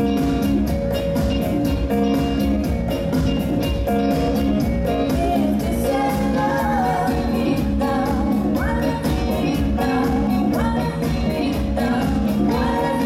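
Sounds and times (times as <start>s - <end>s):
disco music with strings: 0.0s - 13.0s
people singing: 5.2s - 13.0s.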